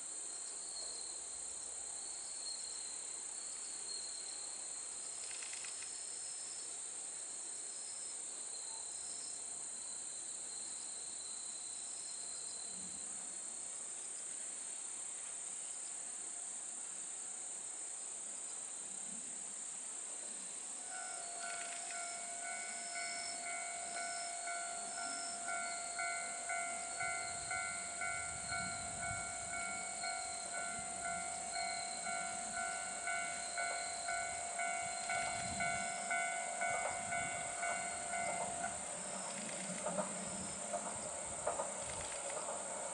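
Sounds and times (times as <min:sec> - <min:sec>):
insects chirring: 0:00.2 - 0:16.0, 0:18.4 - 0:42.9
diesel railcar running: 0:20.8 - 0:42.9
level crossing warning bell: 0:20.9 - 0:40.8.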